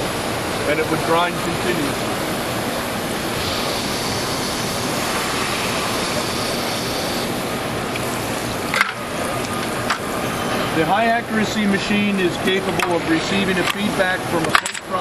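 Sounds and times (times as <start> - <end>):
grinder with rushing coolant hiss: 0.0 - 8.9
higher hiss: 2.6 - 8.6.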